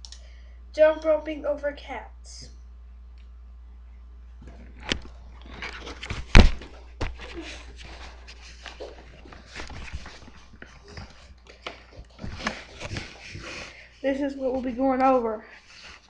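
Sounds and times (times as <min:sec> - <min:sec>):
camera handling knocks and rustling: 0:04.4 - 0:08.0, 0:08.6 - 0:13.3.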